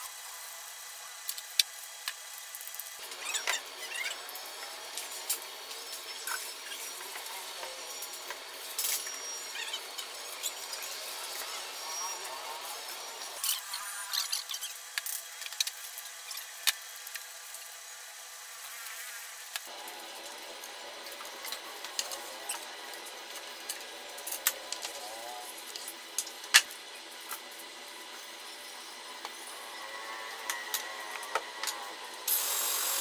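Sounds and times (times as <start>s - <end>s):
steady hiss: 32.2s - 33.0s.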